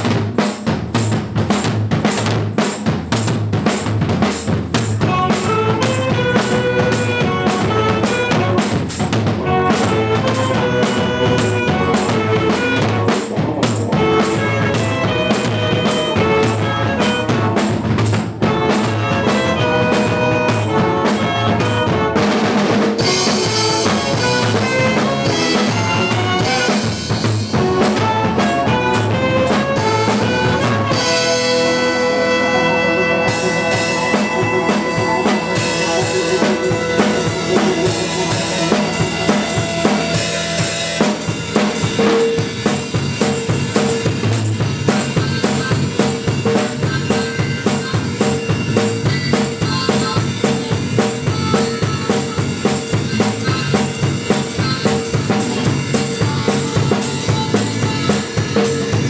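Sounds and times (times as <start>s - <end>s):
bass guitar: 0.0s - 59.0s
drum kit: 0.0s - 59.0s
saxophone: 4.9s - 41.9s, 43.3s - 59.0s
horn section playing: 5.0s - 42.1s.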